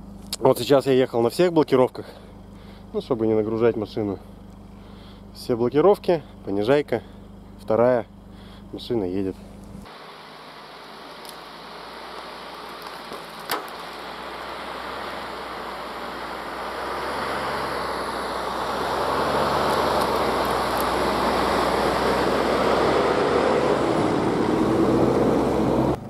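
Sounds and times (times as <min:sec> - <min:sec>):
van engine hum: 0:00.0 - 0:26.0
van pushing through snow: 0:09.8 - 0:26.0.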